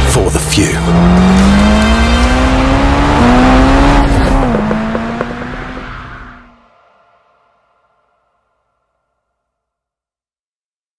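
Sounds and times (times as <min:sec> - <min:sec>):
car engine accelerating hard: 0:00.0 - 0:06.5.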